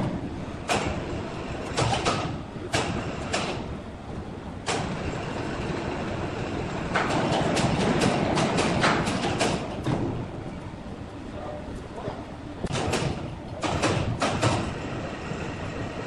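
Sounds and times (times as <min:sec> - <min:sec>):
band-saw mill rumbling: 0:00.0 - 0:10.4, 0:12.6 - 0:16.0
sharp knocks: 0:06.9 - 0:10.2, 0:12.7 - 0:14.8.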